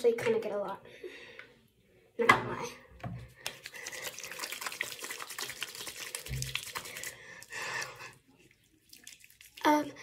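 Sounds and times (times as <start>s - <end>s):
soapy hands rubbing together: 3.4s - 9.9s.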